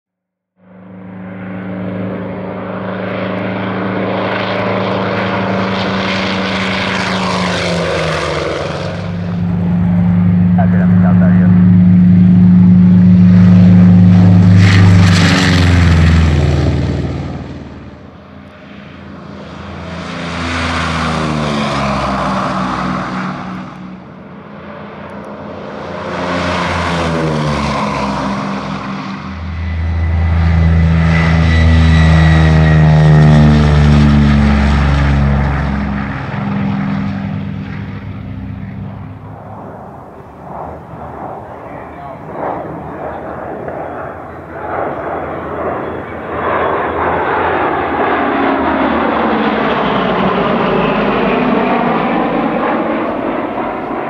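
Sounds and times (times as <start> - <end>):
propeller aircraft passing: 0.6 - 54.0.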